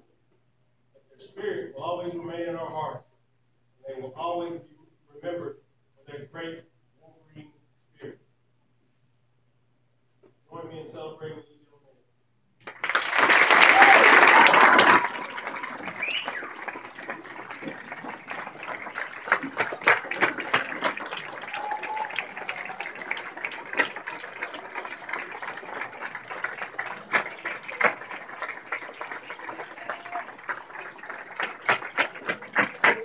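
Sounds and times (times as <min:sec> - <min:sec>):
scattered hand claps: 0:12.6 - 0:33.0
crowd murmur: 0:13.6 - 0:33.0.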